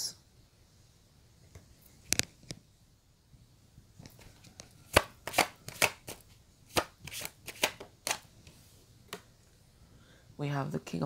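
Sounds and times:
cards slapping on table: 0:04.9 - 0:08.2.

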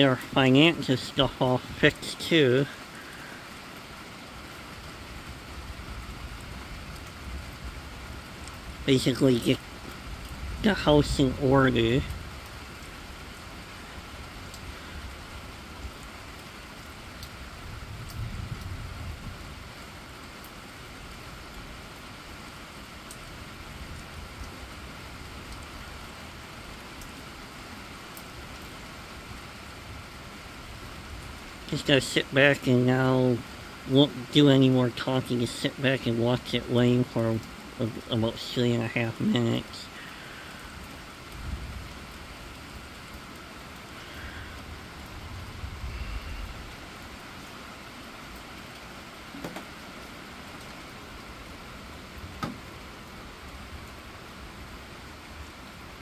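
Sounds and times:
rain hissing on road: 0:00.0 - 0:56.0
single raindrop ticks: 0:25.5 - 0:25.7.

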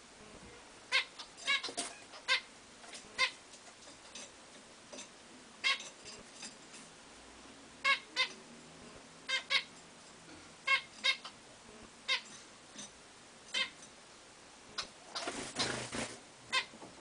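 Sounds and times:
finches giving nasal calls: 0:00.9 - 0:02.5, 0:09.3 - 0:09.7, 0:10.6 - 0:12.4, 0:13.5 - 0:13.8.

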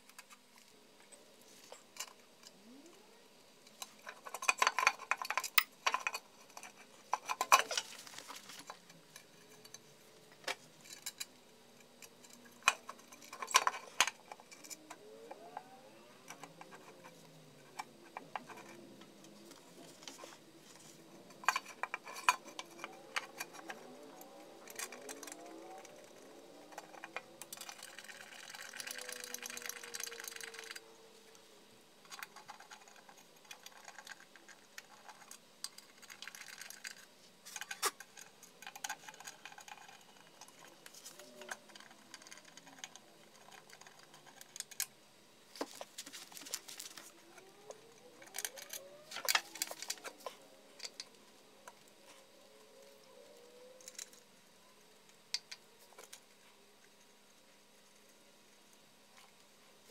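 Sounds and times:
rustling scrape: 0:06.4 - 0:08.9.

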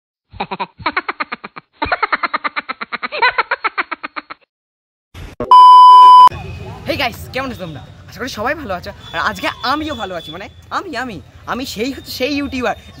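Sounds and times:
censor beep tone: 0:05.5 - 0:06.3.

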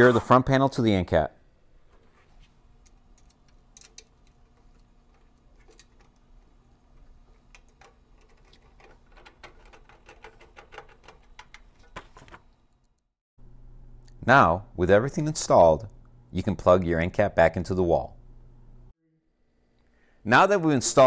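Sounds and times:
screwdriver clicks and scrapes: 0:02.8 - 0:11.6.

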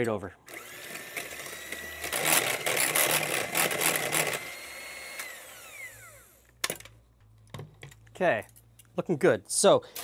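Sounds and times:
electric hand mixer whine: 0:00.5 - 0:06.5.

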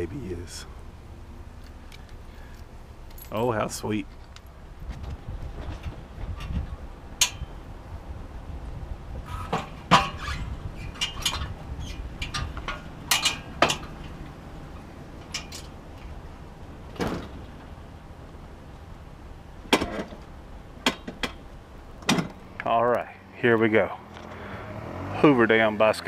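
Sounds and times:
low steady rumble: 0:00.0 - 0:26.0
metal parts clunking and knocking: 0:09.3 - 0:14.3, 0:15.2 - 0:16.1.

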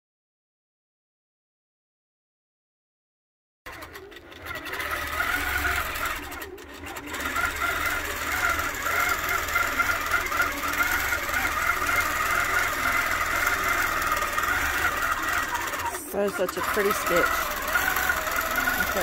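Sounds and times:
quilting machine running: 0:03.7 - 0:19.0.

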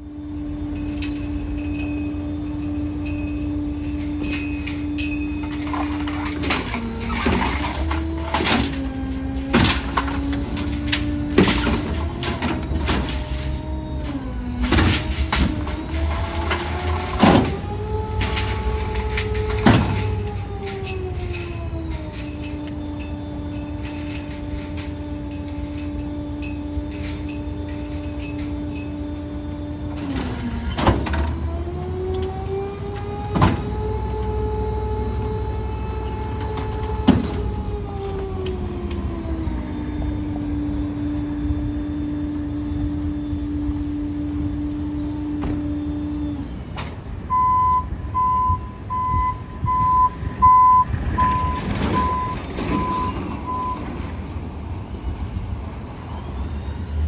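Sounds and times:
reversing beeper: 0:00.0 - 0:46.6, 0:47.3 - 0:54.1
hydraulic packer whine: 0:00.0 - 0:57.0
loud metal clanks: 0:00.6 - 0:29.0.

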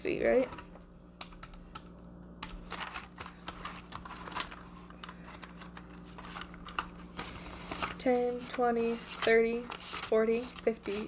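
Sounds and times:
banknotes rustling: 0:02.4 - 0:11.0.

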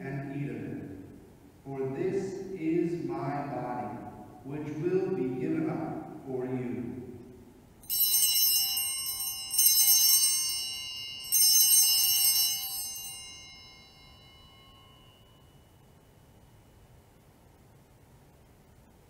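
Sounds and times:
bells ringing: 0:07.8 - 0:16.1.

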